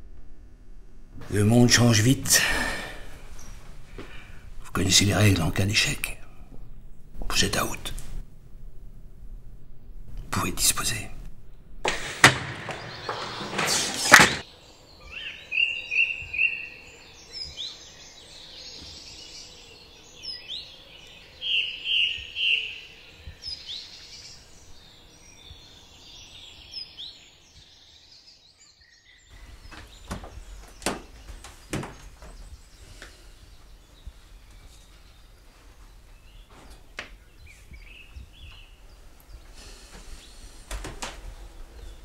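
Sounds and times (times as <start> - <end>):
faint outdoor background: 0.0 - 42.0
birds chirping and trilling: 1.3 - 8.0, 11.9 - 42.0
sharp knocks: 11.8 - 14.4, 29.7 - 32.3.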